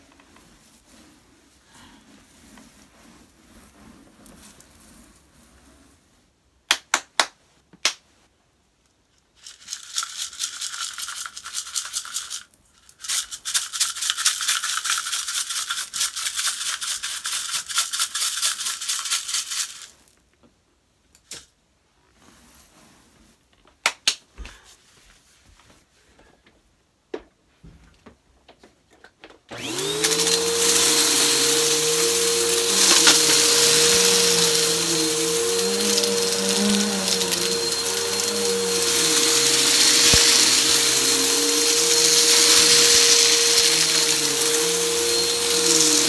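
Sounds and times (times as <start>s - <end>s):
debris poured onto carpet: 30.0s - 46.0s.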